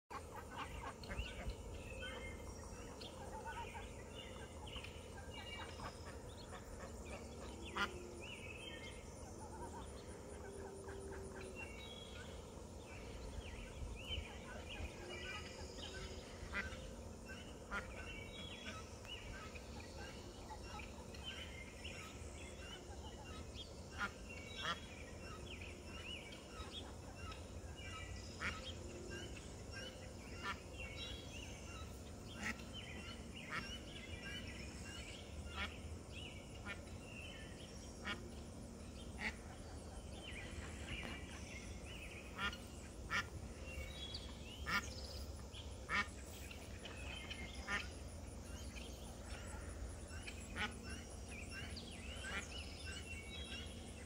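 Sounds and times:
ducklings peeping: 0.1 - 53.8
adult duck calls: 5.3 - 8.1, 14.4 - 16.8, 23.1 - 24.9, 32.3 - 33.9, 35.5 - 35.8, 38.0 - 38.4, 39.2 - 39.7, 42.2 - 43.4, 44.6 - 44.9, 45.8 - 46.4, 47.4 - 48.0, 50.5 - 51.0.

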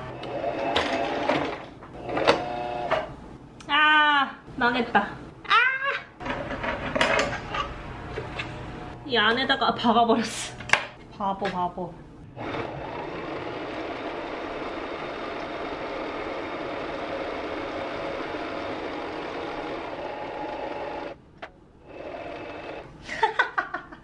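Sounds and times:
electric sewing machine stitching: 0.0 - 3.1, 12.4 - 21.2, 21.8 - 22.9.

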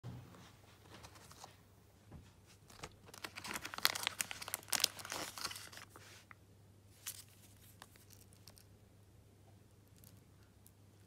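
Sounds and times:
plastic packaging crinkling: 2.7 - 6.0, 7.0 - 8.7.

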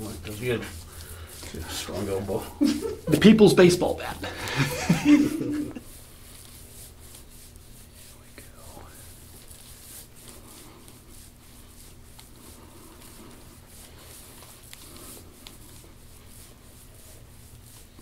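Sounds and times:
rubbing on skin: 0.0 - 18.0
steady low hum: 0.0 - 18.0.

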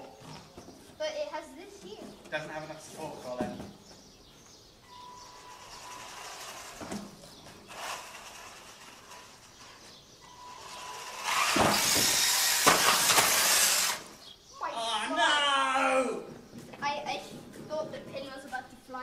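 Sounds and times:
rc car rushing run: 7.6 - 9.9, 10.5 - 14.2
electric motor whine: 7.7 - 14.2
rc car knocking on ramp: 11.4 - 13.6.

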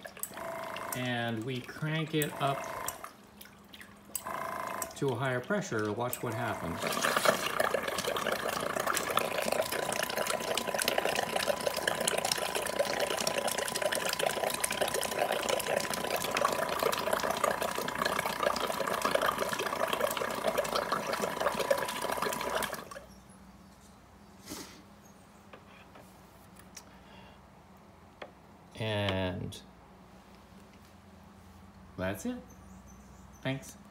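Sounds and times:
air pump whine: 0.0 - 3.1, 6.2 - 23.0
water gushing and splashing: 6.3 - 23.0.

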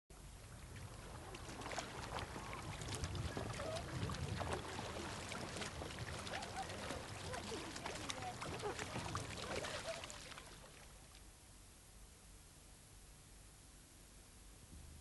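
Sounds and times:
paddles splashing in water: 0.2 - 11.2
faint distant voices: 2.8 - 10.9.

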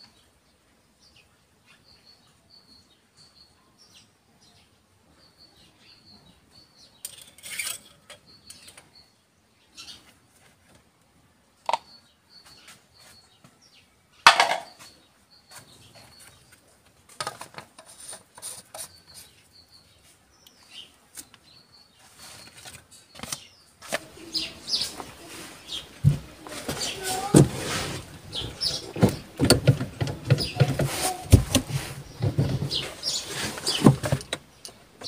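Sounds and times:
bird chirps: 1.0 - 10.1, 11.7 - 16.7, 18.5 - 27.3, 28.0 - 31.3, 31.9 - 35.0
hands handling parts and glass: 25.8 - 34.8.

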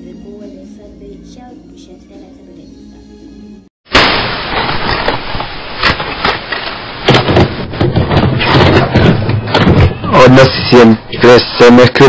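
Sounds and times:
crackles: 3.9 - 10.6
loud static hiss: 3.9 - 12.0.

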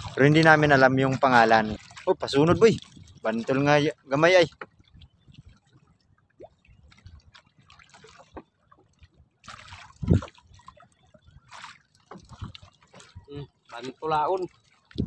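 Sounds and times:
water dripping off fishing net: 4.6 - 13.8.

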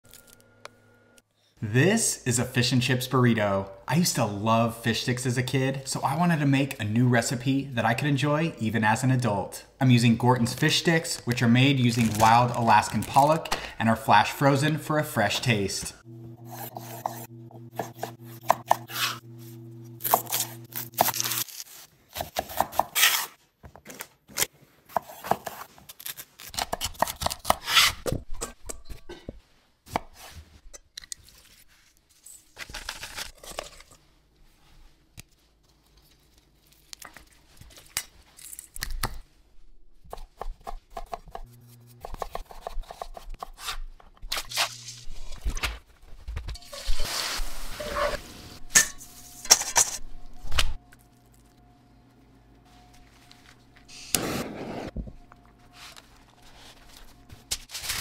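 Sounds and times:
low hum: 48.3 - 57.7.

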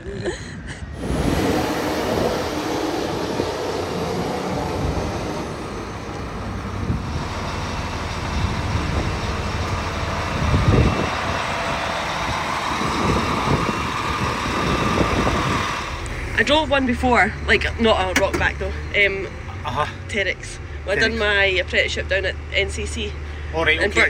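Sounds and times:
high whine: 0.0 - 18.5
diesel truck engine rumbling: 0.0 - 24.0.

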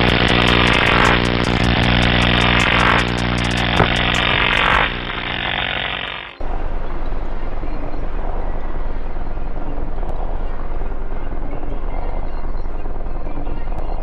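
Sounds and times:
crackling hiss: 0.0 - 6.4
electric buzzing hum: 0.0 - 6.4
steady rushing noise: 0.0 - 11.1.

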